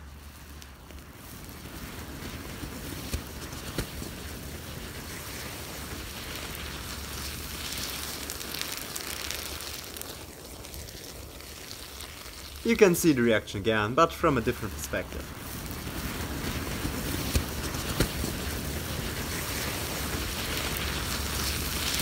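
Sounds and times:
thermite burning hiss: 0.0s - 22.0s
sharp pops: 1.8s - 4.3s, 6.1s - 22.0s.

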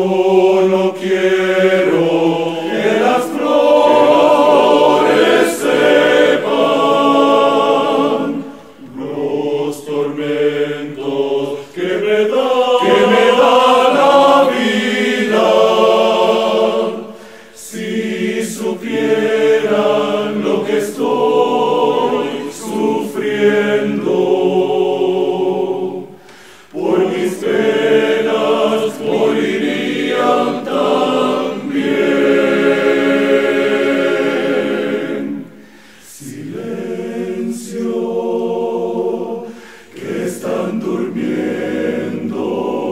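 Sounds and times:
men's choir singing: 0.0s - 42.9s.

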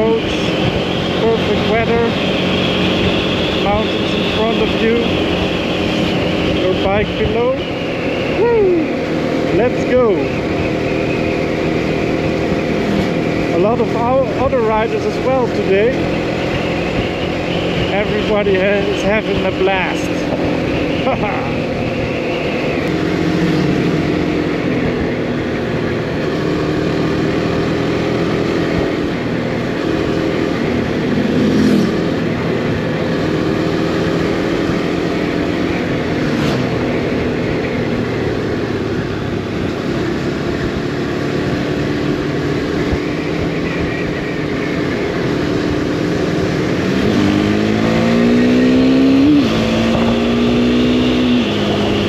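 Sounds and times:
motorcycle engine revving: 0.0s - 52.0s
wind rush: 48.9s - 52.0s.

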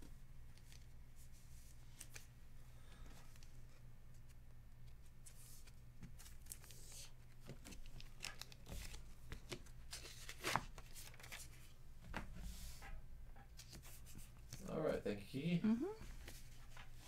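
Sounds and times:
cards rustling: 5.1s - 11.8s.

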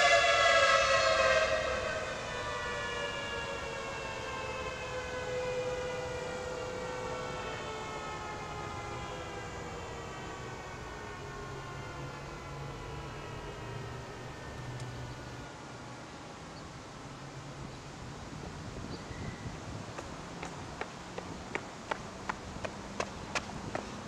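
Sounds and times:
warning siren winding down: 0.0s - 15.6s.

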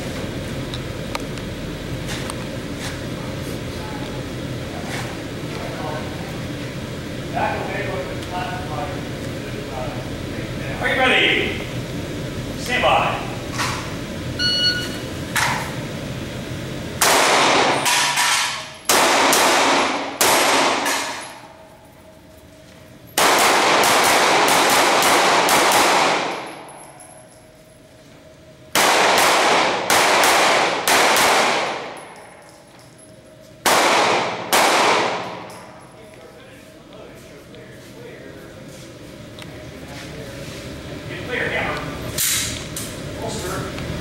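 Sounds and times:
short electronic beep: 14.4s - 15.1s
pistol shots echoing indoors: 17.0s - 21.5s, 23.2s - 27.0s, 28.7s - 32.4s, 33.6s - 35.8s.

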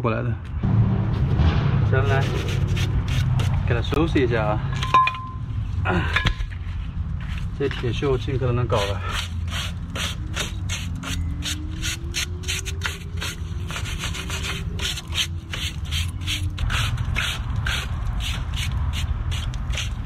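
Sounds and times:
rust scrubbing rasps on steel: 8.7s - 20.0s.

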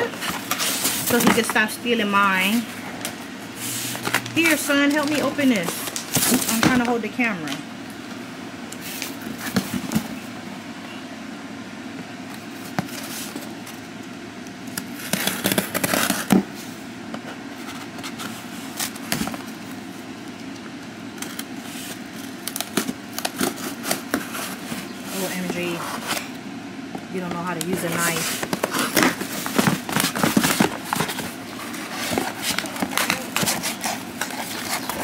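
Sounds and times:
steady low hum: 0.0s - 35.0s
knife scraping packing tape: 15.0s - 16.3s, 22.5s - 24.6s, 31.9s - 35.0s.

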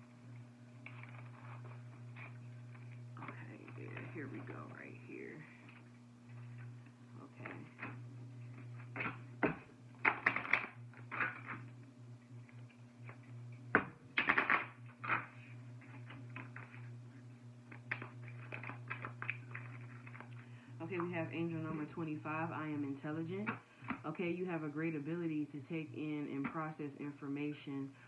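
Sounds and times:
steady low hum: 0.0s - 28.0s
cards shuffling: 17.7s - 20.4s.

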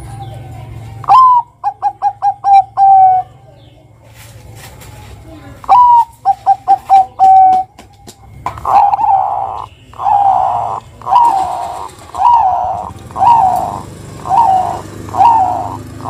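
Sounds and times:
dove rolling calls: 1.0s - 3.3s, 5.6s - 7.8s, 8.4s - 16.0s.

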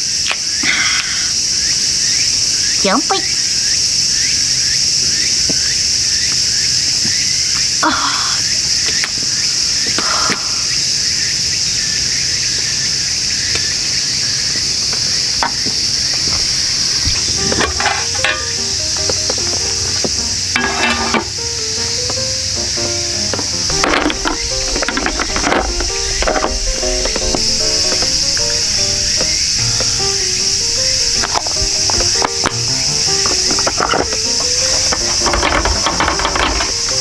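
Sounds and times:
shrill insect chorus: 0.0s - 37.0s
background music with melody: 17.3s - 37.0s.

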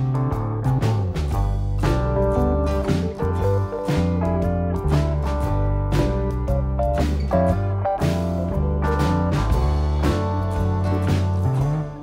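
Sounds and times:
instrumental guitar music: 0.0s - 12.0s.

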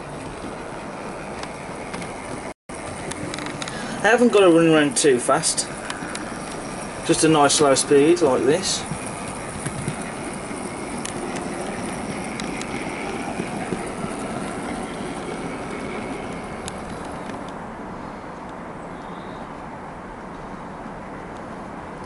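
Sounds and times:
model train motor and wheels running: 0.0s - 17.6s.

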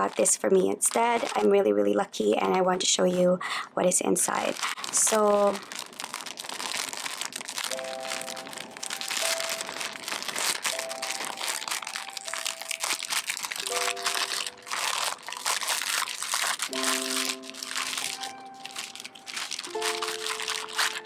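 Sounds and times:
plastic packaging crinkling: 0.0s - 21.0s
soft background music chords: 4.4s - 21.0s.

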